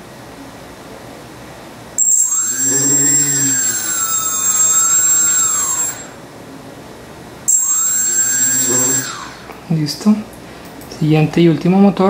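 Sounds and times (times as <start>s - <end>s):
electric motor whine: 2.0s - 6.2s, 7.5s - 9.6s.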